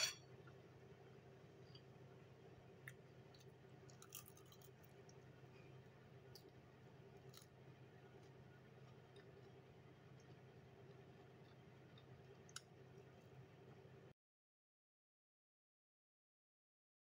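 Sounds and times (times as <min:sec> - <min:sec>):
chewing clicks: 0:02.8 - 0:05.2, 0:07.2 - 0:13.1.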